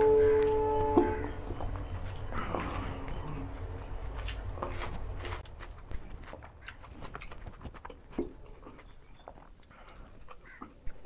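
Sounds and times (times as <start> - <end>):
man chewing with wet smacks: 4.2 - 11.0.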